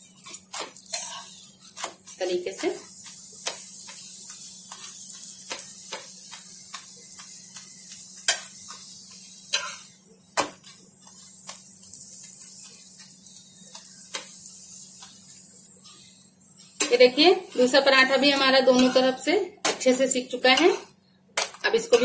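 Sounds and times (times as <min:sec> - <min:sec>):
flatbread sizzling in oil: 0:00.0 - 0:19.2
metal spatula tapping and scraping pan: 0:00.2 - 0:10.7, 0:17.6 - 0:19.8.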